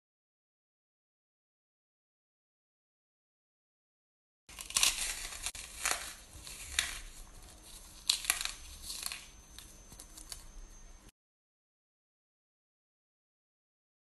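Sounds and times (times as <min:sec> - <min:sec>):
meringues crunching by hand: 0:04.5 - 0:10.5.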